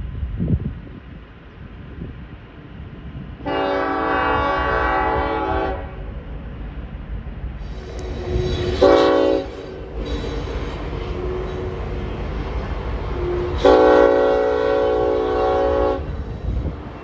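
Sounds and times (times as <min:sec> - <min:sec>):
train rumbling past: 0:00.0 - 0:17.0
locomotive air horn blasts: 0:03.4 - 0:06.1, 0:08.0 - 0:11.8, 0:13.2 - 0:16.2.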